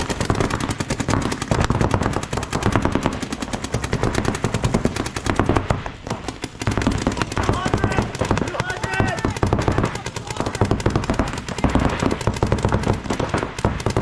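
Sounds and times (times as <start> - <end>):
paintball markers firing: 0.0 - 14.0.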